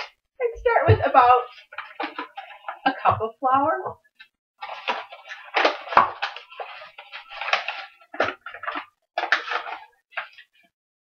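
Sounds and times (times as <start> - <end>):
paper bag crinkling and rustling: 1.1 - 3.0, 4.6 - 10.7.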